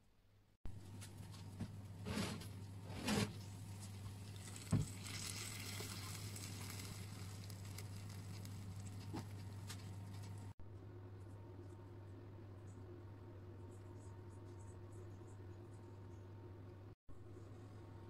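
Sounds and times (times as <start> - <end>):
food sizzling on baking sheet: 3.4 - 10.5.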